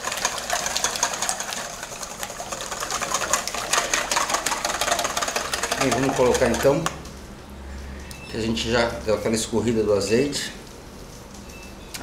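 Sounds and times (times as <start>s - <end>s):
whisk beating eggs in metal bowl: 0.0s - 7.0s.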